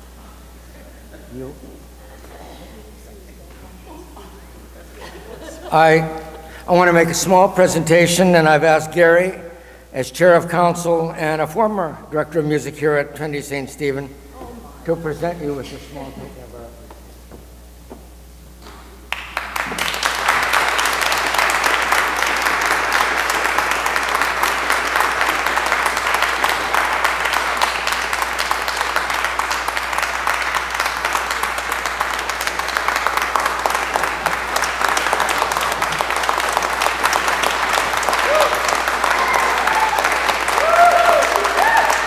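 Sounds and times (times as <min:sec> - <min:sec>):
congregation applauding: 0:19.1 - 0:42.0.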